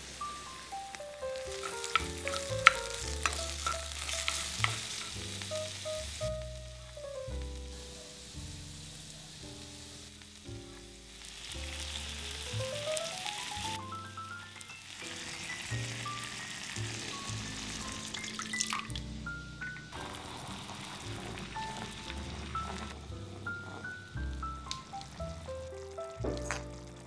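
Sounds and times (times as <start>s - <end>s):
onion and garlic sizzling in oil: 0.0s - 27.0s
soft background music: 0.0s - 27.0s
sauce pouring into pan: 0.3s - 6.4s, 11.1s - 19.1s, 20.0s - 27.0s
stirring clicks: 1.4s - 5.7s.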